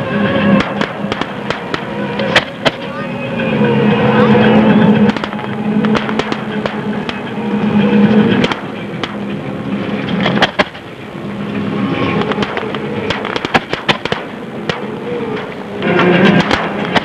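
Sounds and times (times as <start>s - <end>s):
steady low hum: 0.0s - 17.0s
fireworks bangs and crackling: 0.6s - 2.9s, 5.0s - 7.3s, 10.2s - 10.9s, 12.2s - 17.0s.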